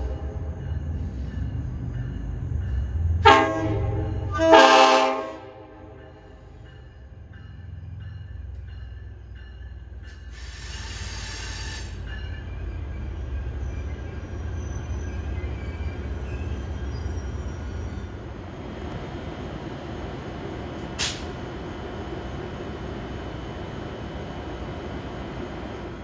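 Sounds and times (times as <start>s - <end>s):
train rumbling past: 0.0s - 26.0s.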